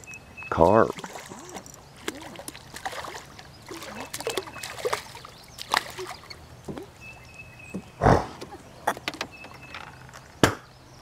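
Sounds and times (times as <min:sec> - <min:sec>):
fish splashing in water: 0:00.9 - 0:06.9.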